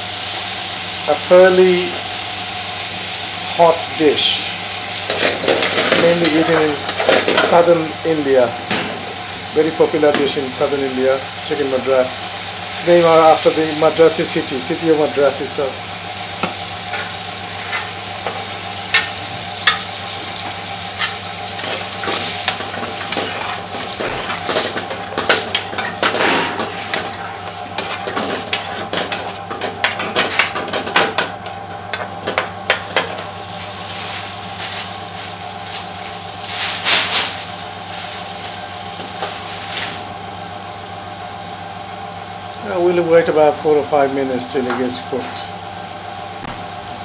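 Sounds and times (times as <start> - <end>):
sauce sizzling in a frying pan: 0.0 - 43.4
steady hum: 0.0 - 47.0
metal spoon scraping a pan: 20.9 - 29.1.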